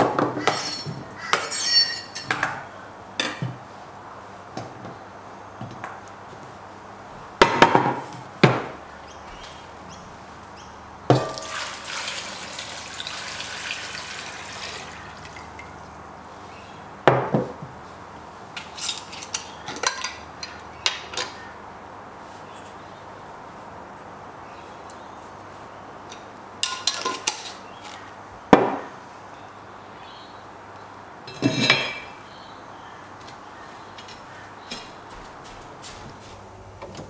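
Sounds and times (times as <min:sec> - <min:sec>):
glass jar clinks: 0:00.6 - 0:02.3
water pouring into a pot: 0:11.2 - 0:15.9.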